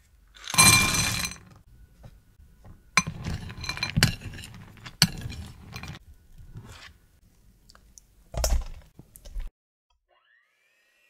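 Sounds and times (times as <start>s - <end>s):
chocolate chips clattering into bowl: 0.4s - 1.5s, 3.0s - 6.0s
metal spoon scraping a bowl: 0.4s - 1.5s, 3.0s - 7.0s.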